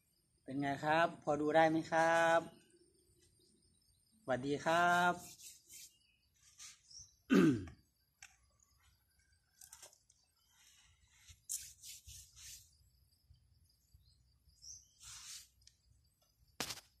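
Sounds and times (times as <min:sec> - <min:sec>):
hands rubbing together: 0:04.9 - 0:06.8, 0:11.2 - 0:12.8, 0:15.0 - 0:15.6.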